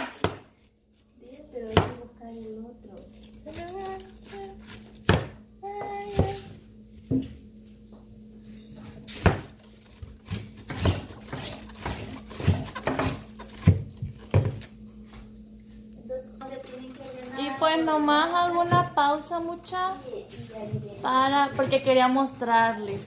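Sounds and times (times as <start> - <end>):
knife chopping on wooden board: 0.0 - 0.5, 5.0 - 5.4, 9.1 - 9.6, 10.2 - 14.6.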